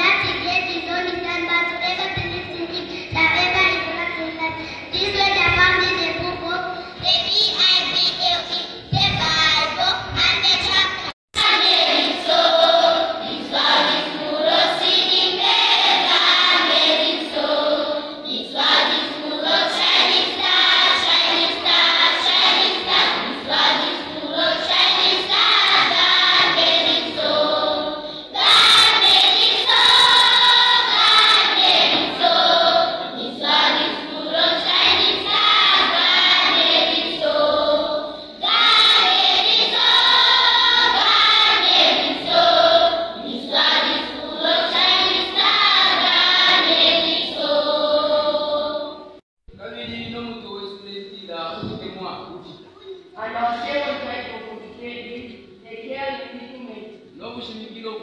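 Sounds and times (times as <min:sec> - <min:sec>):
children's choir singing: 0:11.4 - 0:49.2
girls singing into microphone: 0:11.4 - 0:49.2.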